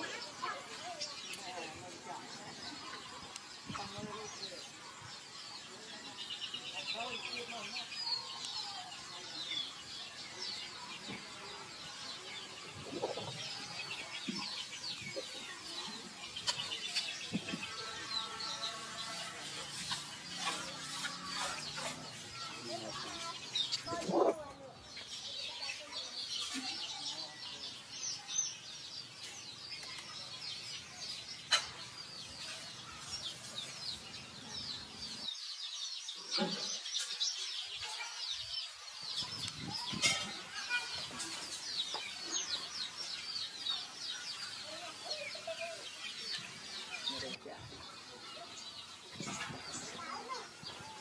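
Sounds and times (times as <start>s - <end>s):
birds chirping: 0.0s - 51.0s.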